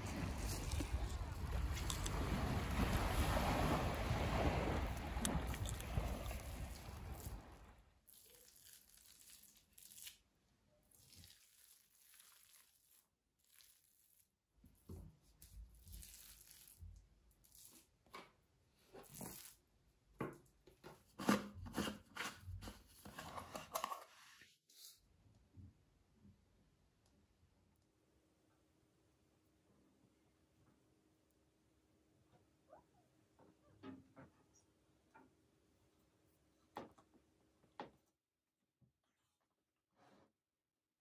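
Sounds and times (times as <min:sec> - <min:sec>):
wind and water noise: 0:00.0 - 0:08.0.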